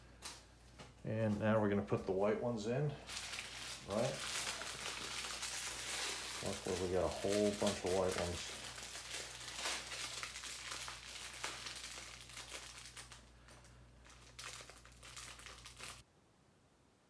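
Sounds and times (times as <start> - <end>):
background hum: 0.0 - 17.0
plastic bags crinkling: 3.0 - 16.0.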